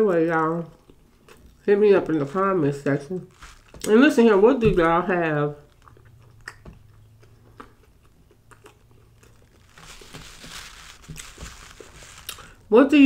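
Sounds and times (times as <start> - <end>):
crunchy chewing: 0.7 - 1.7, 3.2 - 3.9, 5.6 - 12.7
soft mouth clicks: 5.8 - 7.9.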